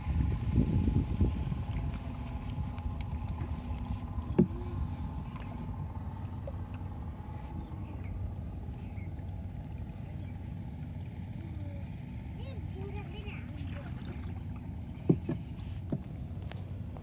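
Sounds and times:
boat engine droning: 0:00.0 - 0:17.0.

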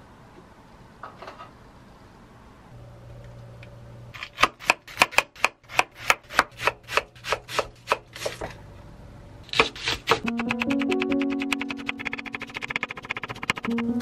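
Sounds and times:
knife slicing cabbage on board: 0:04.2 - 0:08.5, 0:09.5 - 0:10.4.

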